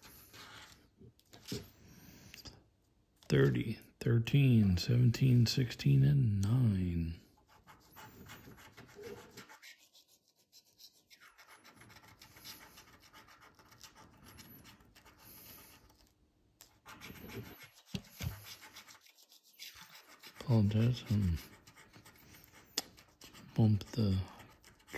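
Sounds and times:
coin scratching lottery ticket: 0:07.6 - 0:09.9, 0:10.6 - 0:16.0, 0:16.8 - 0:24.9.

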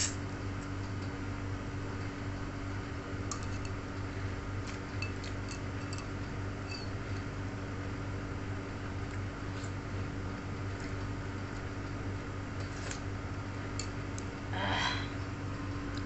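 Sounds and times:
low hum: 0:00.0 - 0:16.0
fork and spoon clinking against bowl: 0:05.0 - 0:06.9.

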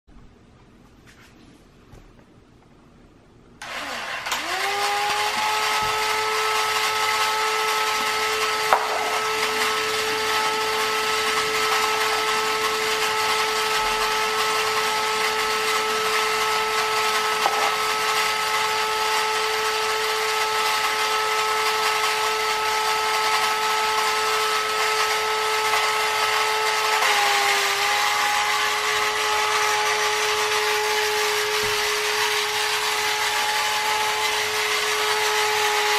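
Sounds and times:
toy electric motor whining: 0:03.6 - 0:35.9
whirring mechanical rattle: 0:03.6 - 0:35.9.

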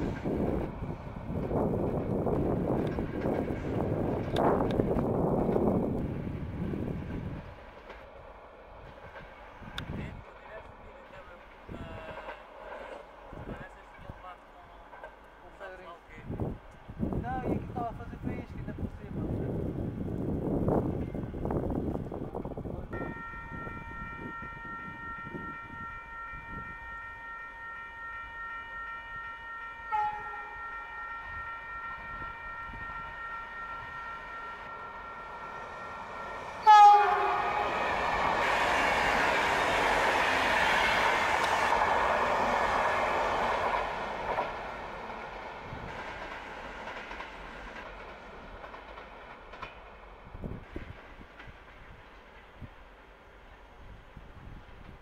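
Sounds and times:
passenger train passing: 0:00.0 - 0:55.0
click: 0:04.2 - 0:04.8
train horn long note: 0:23.0 - 0:39.5.

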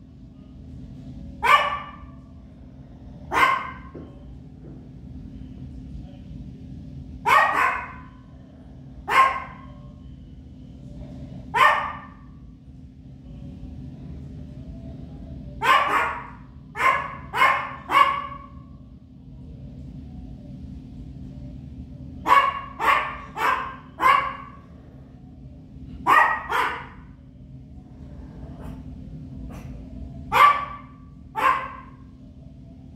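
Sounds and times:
small dog barking: 0:01.4 - 0:02.1, 0:03.3 - 0:03.9, 0:07.2 - 0:08.2, 0:09.1 - 0:09.8, 0:11.5 - 0:12.3, 0:15.6 - 0:18.6, 0:22.2 - 0:24.7, 0:26.0 - 0:27.1, 0:29.5 - 0:32.0
small dog yapping: 0:07.3 - 0:08.1, 0:15.6 - 0:18.5.

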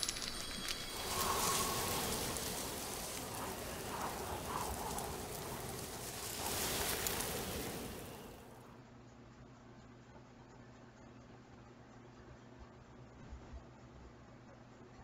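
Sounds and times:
steady rain-like hiss: 0:00.0 - 0:08.7.

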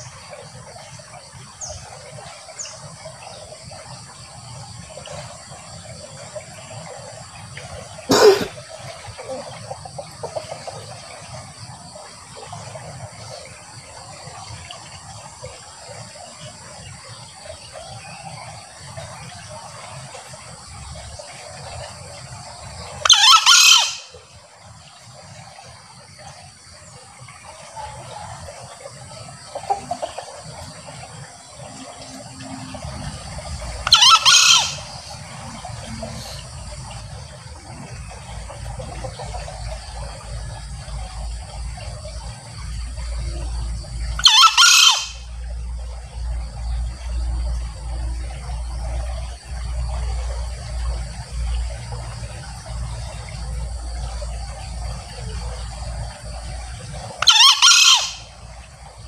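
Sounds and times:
junglefowl crowing: 0:23.0 - 0:24.1, 0:33.8 - 0:36.5, 0:44.2 - 0:45.3, 0:57.2 - 0:58.3
steady background hiss: 0:28.5 - 0:44.2.

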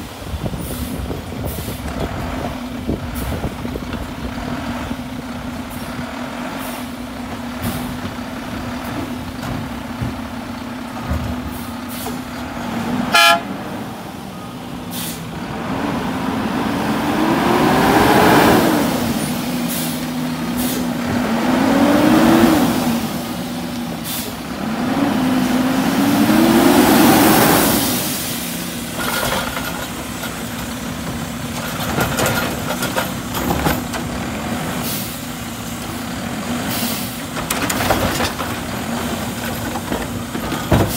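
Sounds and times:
garbage truck engine: 0:00.0 - 0:40.9
truck horn toot: 0:13.0 - 0:13.6.

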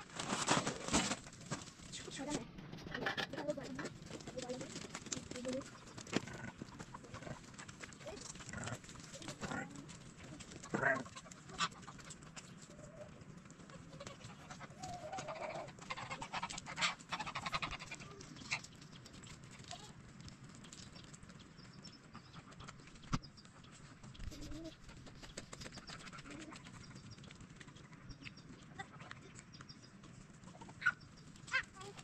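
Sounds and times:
small clicks and rustles: 0:00.0 - 0:32.0
rasping animal call: 0:13.8 - 0:18.7.

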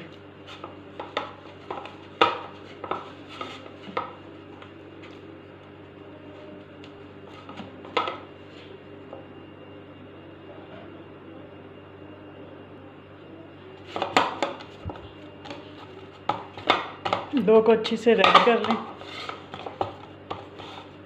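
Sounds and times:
dough squishing and rubbing: 0:00.0 - 0:08.8, 0:13.8 - 0:21.0.

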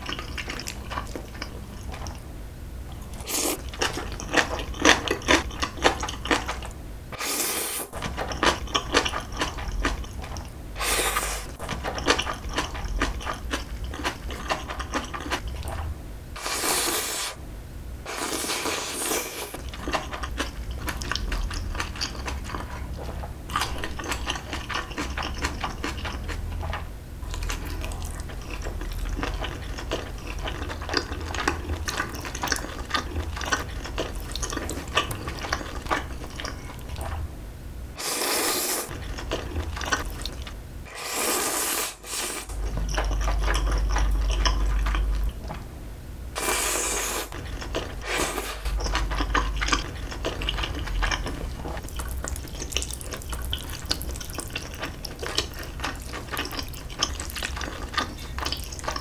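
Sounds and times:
wet chewing: 0:02.9 - 0:06.8, 0:07.9 - 0:17.4, 0:18.2 - 0:37.2, 0:38.0 - 0:40.6, 0:42.1 - 0:45.6, 0:46.4 - 0:59.0
slurping noodles: 0:07.2 - 0:07.9, 0:10.8 - 0:11.6, 0:16.4 - 0:17.4, 0:18.1 - 0:19.6, 0:38.0 - 0:38.9, 0:40.9 - 0:42.6, 0:46.4 - 0:47.4, 0:48.0 - 0:48.7.

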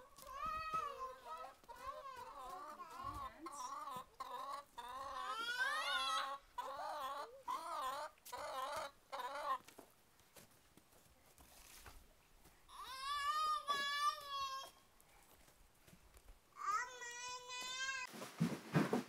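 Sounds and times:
chicken calling: 0:01.7 - 0:09.6.

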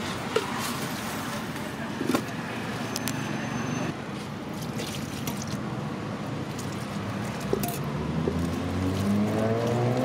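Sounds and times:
vehicle engine speeding up: 0:07.8 - 0:10.0.

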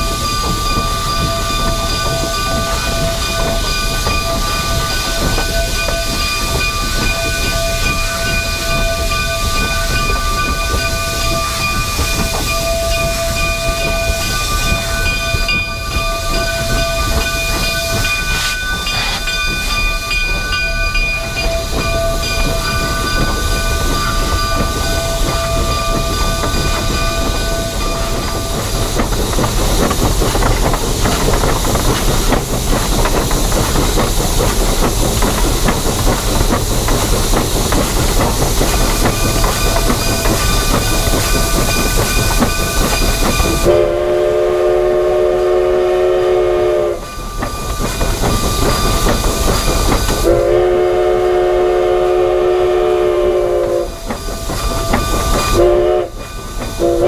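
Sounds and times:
rail clatter: 0:00.0 - 0:57.0
steam locomotive hissing: 0:00.0 - 0:57.0
steam whistle blast: 0:43.6 - 0:47.1, 0:50.2 - 0:54.0, 0:55.4 - 0:56.2, 0:56.8 - 0:57.0.

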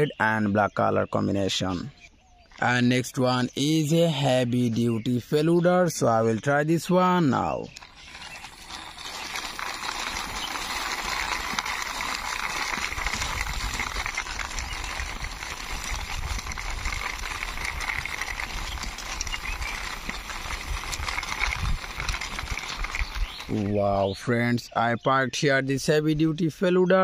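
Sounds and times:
plastic wheels rattling on concrete: 0:06.8 - 0:24.8.

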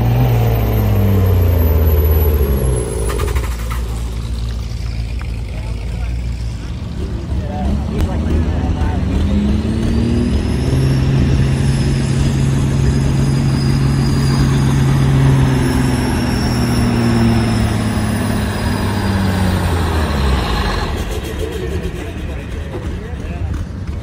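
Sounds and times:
truck diesel engine under load: 0:00.0 - 0:24.0.

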